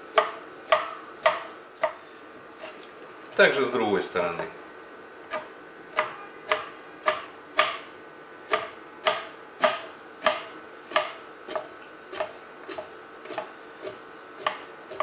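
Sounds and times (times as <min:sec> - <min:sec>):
knife chopping on cutting board: 0:00.1 - 0:02.0, 0:05.3 - 0:07.9, 0:08.5 - 0:15.0.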